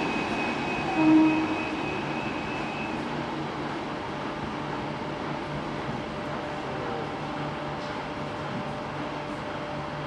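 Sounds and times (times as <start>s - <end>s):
train rumbling: 0.0s - 10.0s.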